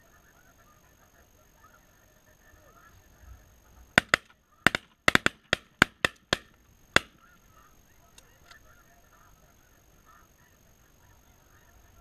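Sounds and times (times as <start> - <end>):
shotgun shots: 4.0 - 7.3
geese honking: 4.0 - 12.0.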